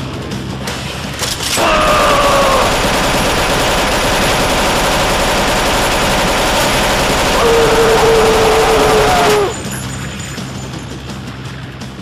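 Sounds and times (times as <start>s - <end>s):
falling whine: 1.6s - 9.6s
loud dense crackling: 1.6s - 9.6s.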